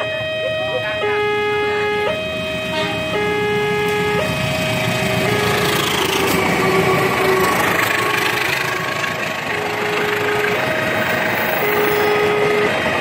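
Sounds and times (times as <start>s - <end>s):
level crossing alarm two tones: 0.0s - 6.2s, 9.4s - 13.0s
train wheels rumbling on rails: 3.9s - 13.0s.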